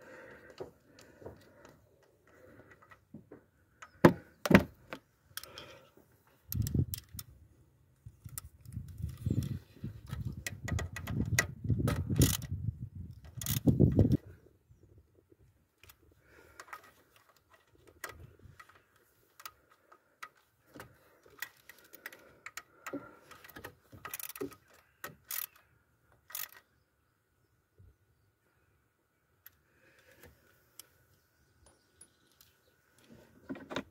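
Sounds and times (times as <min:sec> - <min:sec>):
metallic clicks of tools: 0:06.5 - 0:07.3, 0:08.2 - 0:14.2, 0:15.8 - 0:26.7.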